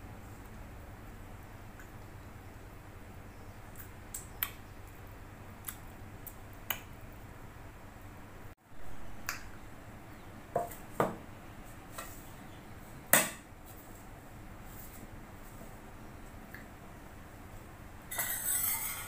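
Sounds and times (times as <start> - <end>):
faint steady hum: 0.0 - 19.0
sharp clicks of eating by hand: 3.7 - 7.0.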